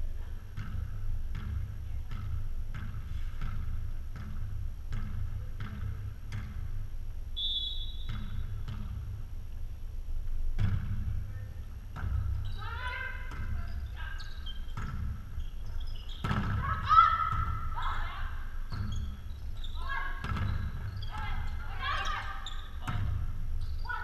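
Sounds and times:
volleyball bouncing on gym floor: 0.1 - 9.4, 10.4 - 24.0.

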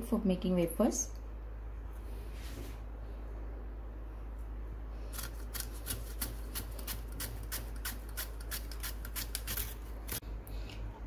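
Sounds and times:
banana slicing rasps on metal blade: 5.1 - 10.2.

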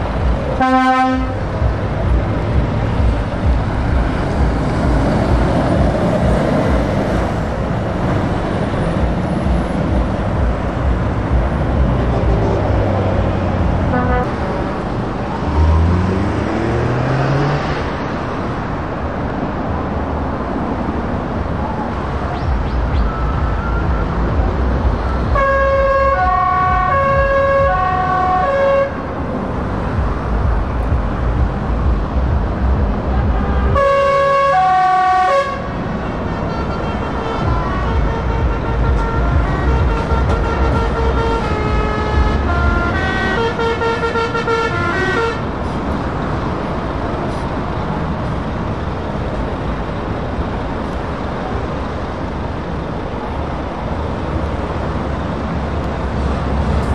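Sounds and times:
diesel truck engines rumbling: 0.0 - 56.9
musical air horns: 0.5 - 1.6, 13.7 - 14.4, 23.4 - 29.2, 33.1 - 45.9.

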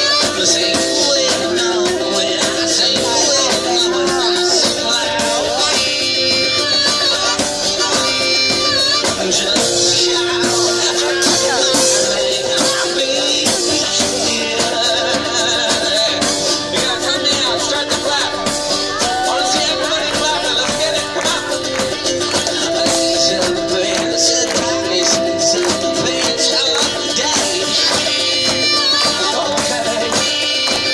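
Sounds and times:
person singing: 0.0 - 30.9
steady drum beat: 0.0 - 30.9
strummed acoustic guitar: 0.0 - 30.9.

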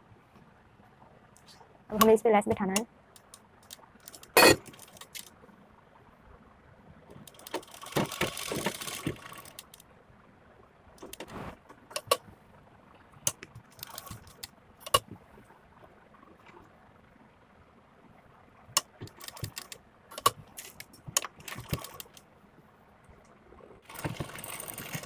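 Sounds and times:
sewing machine stitching: 7.3 - 9.7, 21.2 - 22.1, 23.8 - 25.0.

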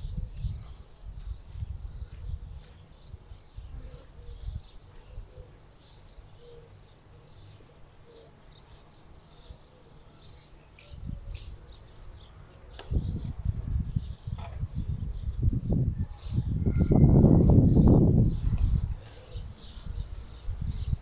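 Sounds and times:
wind buffeting microphone: 0.0 - 5.4, 10.9 - 21.0
small birds chirping: 0.0 - 21.0.

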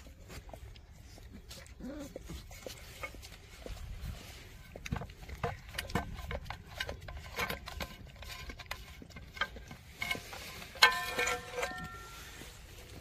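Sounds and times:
dogs lapping milk from metal pan: 0.6 - 13.0.

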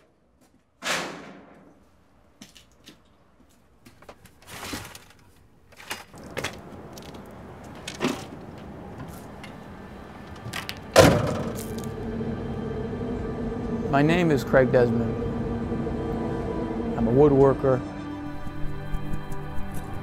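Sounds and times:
door slamming: 10.6 - 11.8
metal shed door banging: 10.9 - 11.6.

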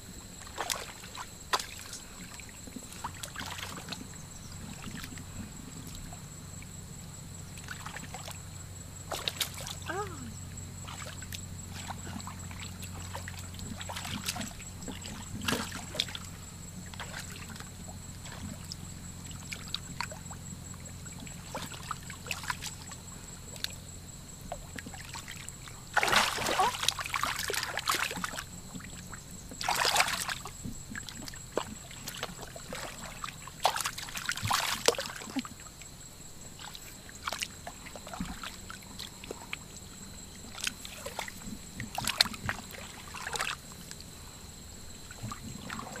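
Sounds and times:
hands sloshing in muddy water: 0.4 - 6.2, 7.6 - 20.4, 21.0 - 23.8, 24.5 - 35.8, 36.5 - 44.0, 45.0 - 46.0
loud water splashes: 25.9 - 28.4.

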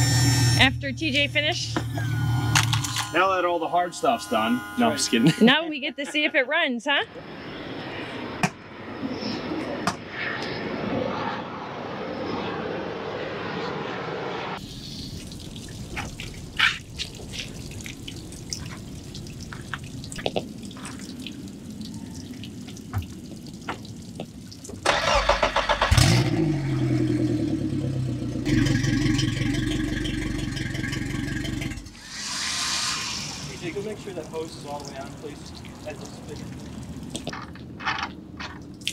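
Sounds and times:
hiss: 14.6 - 15.3, 32.0 - 34.6
outboard motor starting and idling: 24.8 - 32.1.

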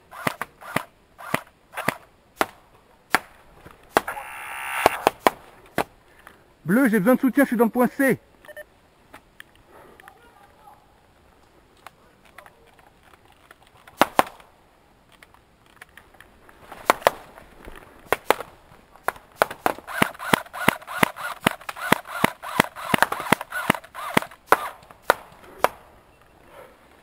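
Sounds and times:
airsoft gun shots popping: 0.2 - 5.9, 14.0 - 14.5, 18.1 - 25.9.

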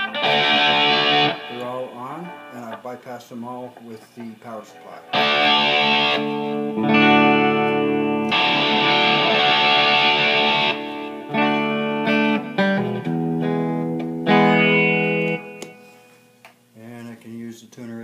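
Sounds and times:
distorted electric guitar chords: 0.0 - 2.9, 4.8 - 16.2.

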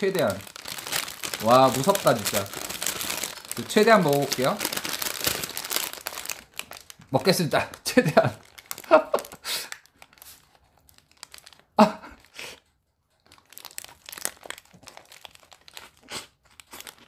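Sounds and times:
lettuce crunching: 0.0 - 7.1, 13.4 - 17.0
paper wrapper crinkling: 0.0 - 17.0.

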